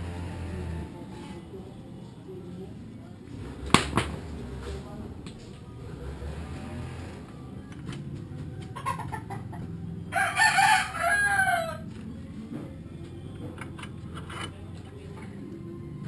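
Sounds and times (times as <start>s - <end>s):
rooster crowing: 10.1s - 11.9s.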